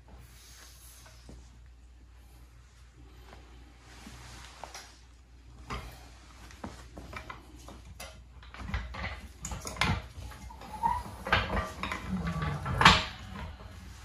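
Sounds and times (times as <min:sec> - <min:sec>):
floor jacks lowering with metallic clicks: 0:08.0 - 0:14.0.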